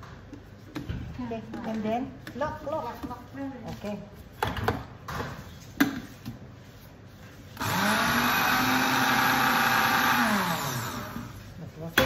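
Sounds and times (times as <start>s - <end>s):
blender motor running: 7.6s - 11.4s.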